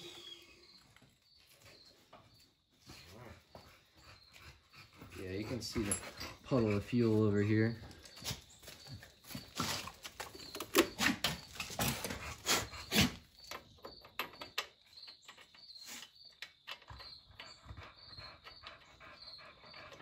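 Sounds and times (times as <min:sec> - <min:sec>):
faint high chirp: 0:00.0 - 0:02.1.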